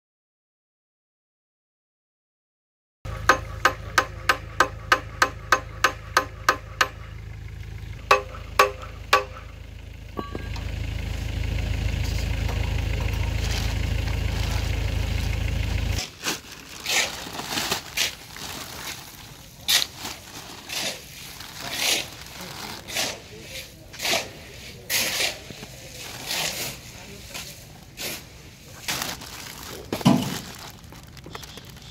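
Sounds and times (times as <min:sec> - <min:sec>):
hammer striking metal: 0:03.1 - 0:07.2, 0:08.0 - 0:09.5, 0:10.2 - 0:10.7
low hum: 0:03.1 - 0:16.0
plastic wrap crinkling: 0:13.3 - 0:15.4, 0:16.0 - 0:22.9, 0:28.7 - 0:31.9.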